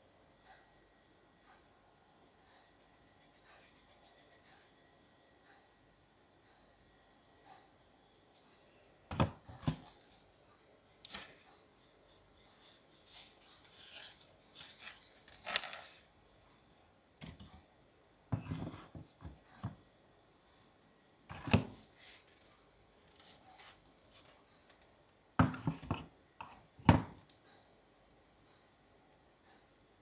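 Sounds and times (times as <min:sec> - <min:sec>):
bamboo and wood knocks: 0:09.1 - 0:09.8.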